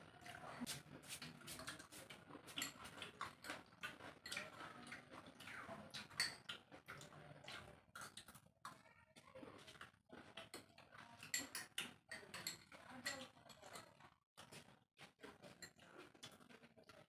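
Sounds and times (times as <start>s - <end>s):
spoons scraping in bowls: 0.3s - 4.8s, 6.0s - 6.4s, 10.5s - 13.8s.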